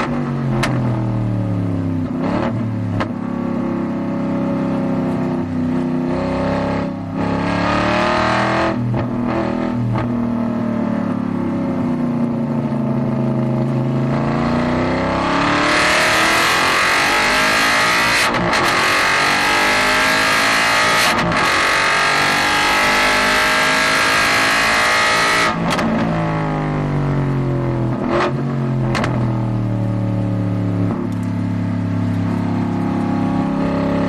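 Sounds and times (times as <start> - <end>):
race car engine accelerating: 14.0 - 26.2.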